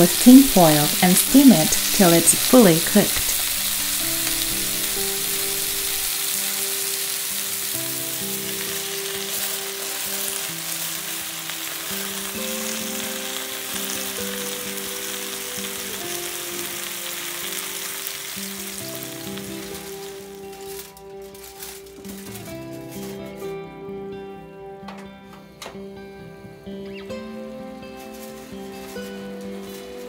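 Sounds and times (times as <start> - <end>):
chicken sizzling in oil: 0.0 - 23.2
background music: 0.0 - 30.0.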